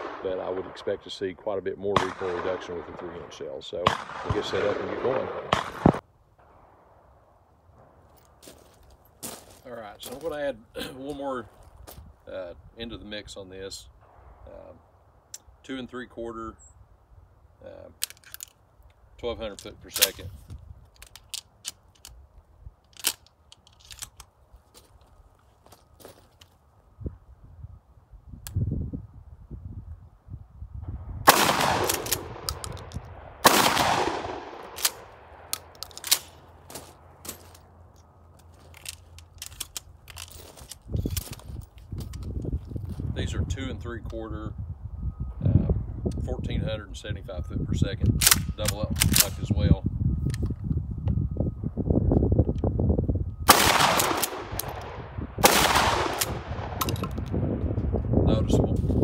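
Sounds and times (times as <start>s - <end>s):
shotgun shots echoing: 0.0s - 1.1s, 1.9s - 6.9s, 31.2s - 36.4s, 53.5s - 57.0s.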